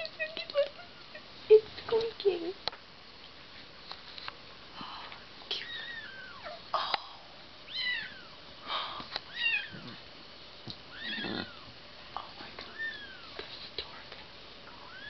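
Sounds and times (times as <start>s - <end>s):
soft rustling: 1.5s - 6.1s, 12.0s - 14.9s
newborn kitten mewing: 10.9s - 11.6s.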